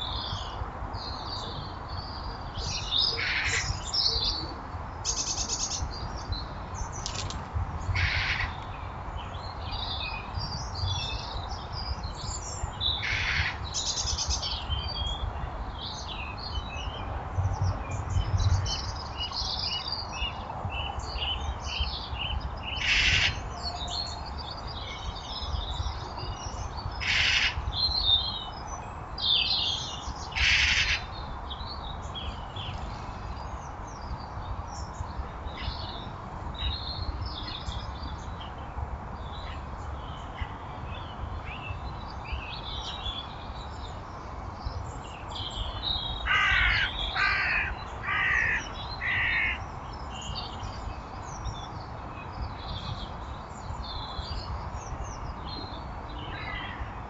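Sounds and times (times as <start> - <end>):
garden birds chirping: 0.0 - 57.0
harsh bird calls: 7.0 - 8.8, 22.7 - 24.2, 26.9 - 28.4, 29.4 - 31.2, 45.4 - 50.5.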